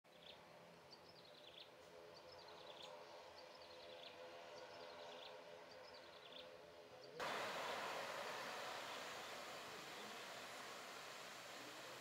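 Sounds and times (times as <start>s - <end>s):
distant turboprop engines humming: 7.2s - 12.0s.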